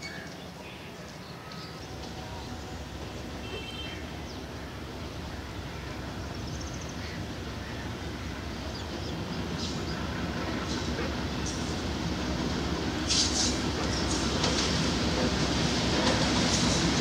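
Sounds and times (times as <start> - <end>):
birds chirping: 0.0 - 10.7
distant diesel locomotive rumble: 0.3 - 17.0.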